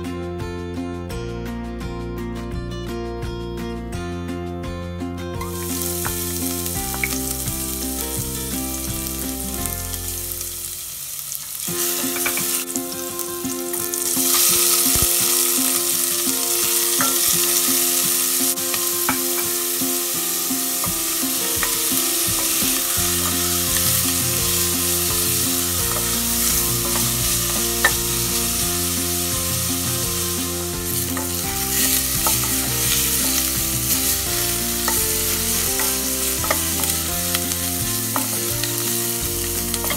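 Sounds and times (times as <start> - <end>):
soft background music: 0.0 - 39.9
food sizzling in hot oil: 5.4 - 39.9
wooden spoon stirring: 11.8 - 12.7, 13.8 - 39.9.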